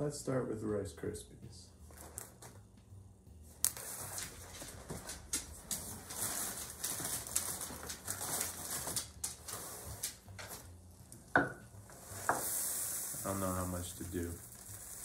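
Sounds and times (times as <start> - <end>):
cereal box rustling and crinkling: 3.7 - 10.7, 12.1 - 15.0.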